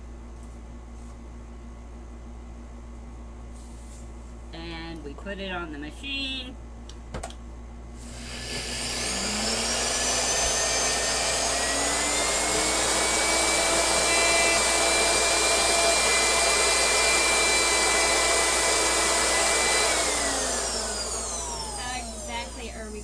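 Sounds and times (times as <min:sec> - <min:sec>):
blender motor grinding seeds: 0:08.0 - 0:22.8.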